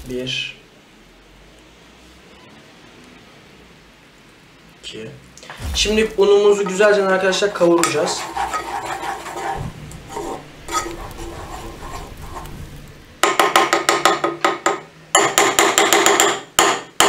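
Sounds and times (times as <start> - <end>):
spoon stirring in pot: 7.8 - 12.6
spoon tapping against pot: 13.2 - 16.8.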